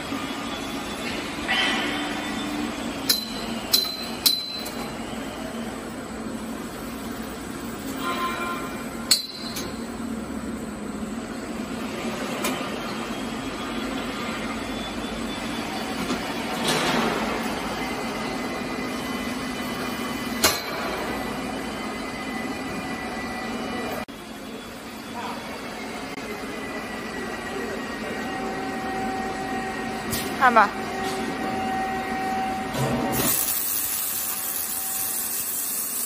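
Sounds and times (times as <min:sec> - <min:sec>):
welding machine humming: 0:29.3 - 0:36.0.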